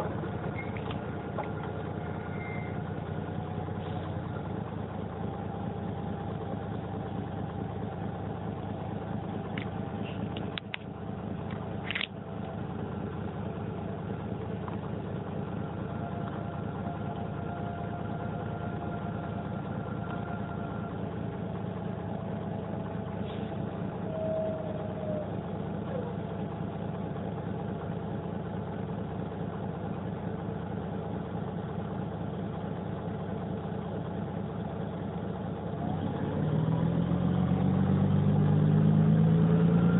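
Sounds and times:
diesel bus engine running: 0:00.0 - 0:39.9.

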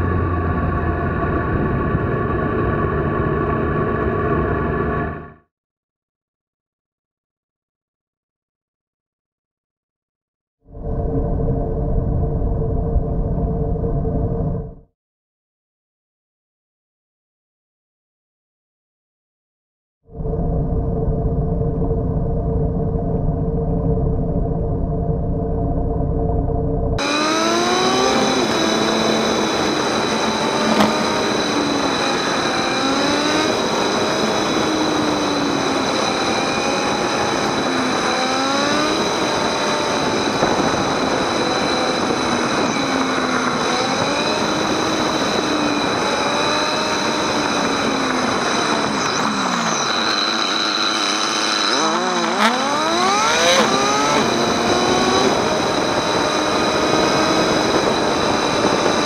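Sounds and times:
motorcycle engine accelerating: 0:00.0 - 0:05.4, 0:21.2 - 0:59.0
wind and road noise: 0:00.0 - 0:05.4, 0:20.5 - 0:59.0.

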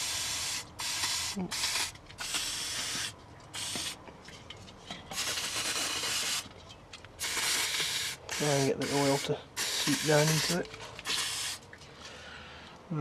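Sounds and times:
aerosol spray hissing bursts: 0:00.0 - 0:04.0, 0:05.1 - 0:06.4, 0:07.2 - 0:11.6.

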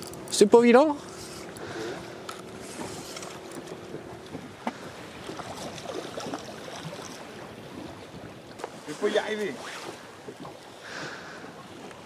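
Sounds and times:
fishing reel humming: 0:00.0 - 0:03.8
choppy sea water: 0:00.0 - 0:12.0
wind: 0:00.0 - 0:12.0
fish splashing: 0:04.5 - 0:07.8.

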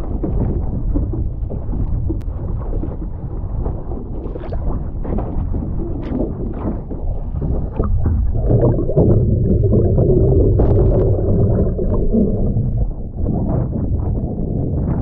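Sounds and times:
muffled underwater rumble: 0:00.0 - 0:15.0
water sloshing and gurgling: 0:00.0 - 0:15.0.

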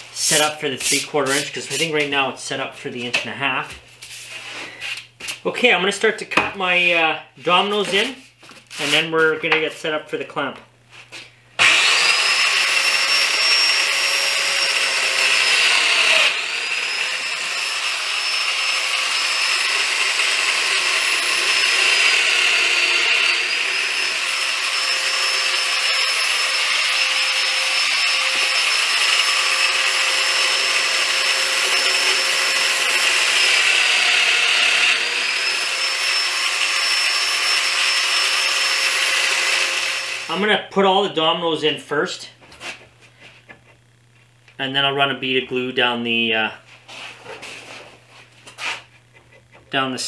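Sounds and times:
joiner motor whine: 0:11.6 - 0:40.3.

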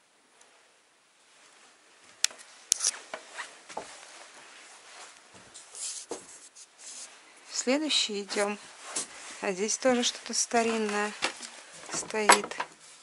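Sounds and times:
scuffs and knocks: 0:03.0 - 0:07.2, 0:08.3 - 0:12.8
footsteps on wooden floor: 0:03.1 - 0:04.1, 0:05.0 - 0:06.3, 0:10.5 - 0:12.6.

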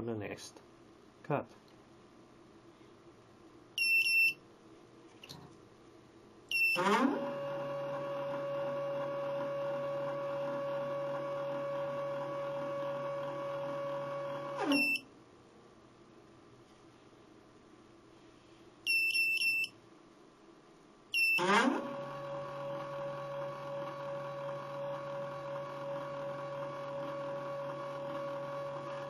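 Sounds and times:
stepper motor whine: 0:06.8 - 0:14.8, 0:21.4 - 0:29.0.

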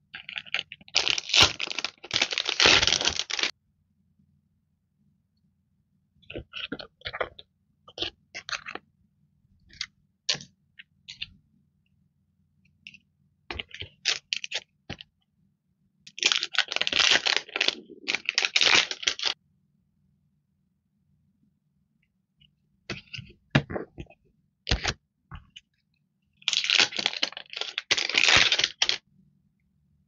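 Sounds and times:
plastic packaging crinkling: 0:00.2 - 0:03.5, 0:16.1 - 0:19.4, 0:26.5 - 0:29.0.

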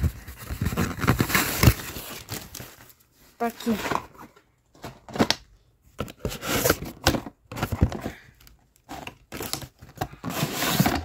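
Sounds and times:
packaging rustling and crinkling: 0:00.0 - 0:04.2.

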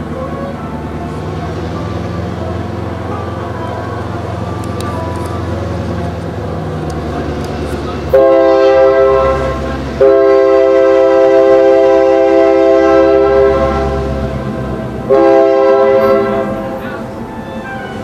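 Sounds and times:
train rumbling: 0:00.0 - 0:18.0
locomotive air horn blasts: 0:08.1 - 0:14.2, 0:15.0 - 0:16.8.

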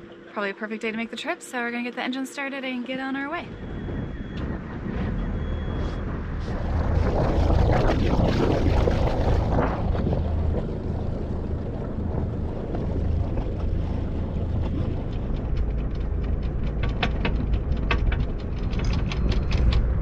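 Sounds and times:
boat engine drone: 0:00.0 - 0:20.0
wind on microphone: 0:03.4 - 0:20.0
water splashing along hull: 0:03.5 - 0:20.0.

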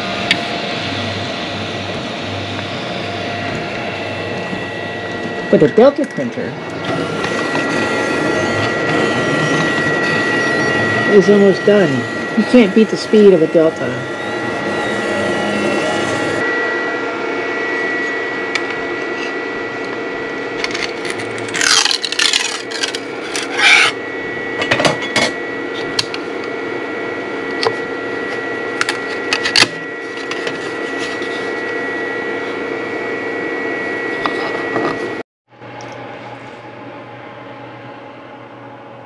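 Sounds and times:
printer fans and motors whining: 0:00.0 - 0:39.0
stepper motor sweeping moves: 0:00.1 - 0:16.5.

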